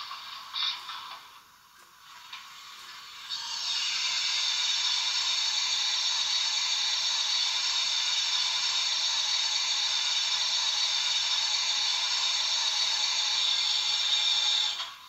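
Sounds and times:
steam hiss from small loudspeaker: 0:00.0 - 0:01.4, 0:02.0 - 0:15.0.

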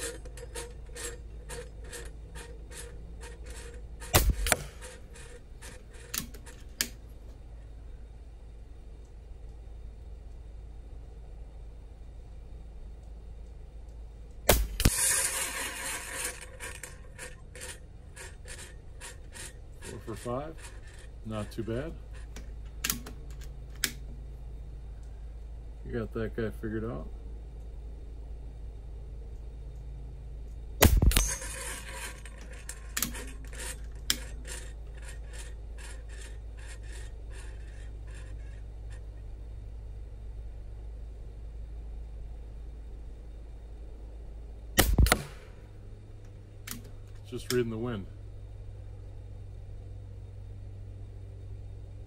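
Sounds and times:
swinging target scraping clicks: 0:00.0 - 0:07.4, 0:14.4 - 0:24.1, 0:30.4 - 0:39.2, 0:44.8 - 0:47.8
pellet striking steel target: 0:04.0 - 0:04.9, 0:14.5 - 0:16.3, 0:30.8 - 0:32.2, 0:44.8 - 0:45.7
air rifle shot: 0:04.1 - 0:04.8, 0:14.5 - 0:15.9, 0:30.8 - 0:31.4, 0:44.8 - 0:45.6
clicks: 0:46.2 - 0:47.7.

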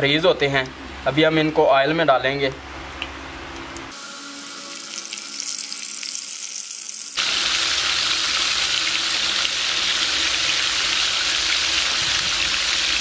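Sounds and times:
kebabs sizzling in hot oil: 0:03.9 - 0:13.0.

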